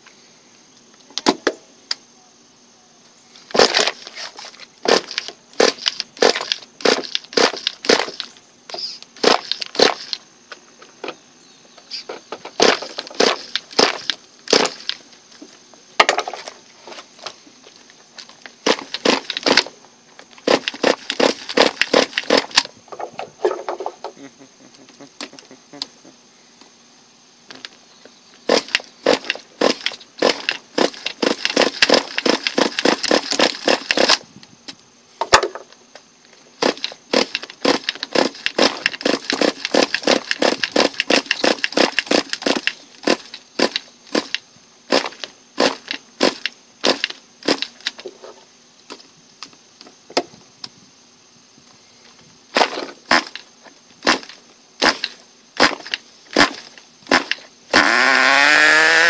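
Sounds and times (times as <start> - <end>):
small engine clicking and popping: 3.5 - 10.3, 11.9 - 15.0, 18.2 - 26.0, 28.5 - 36.0, 36.6 - 48.1, 52.6 - 59.0.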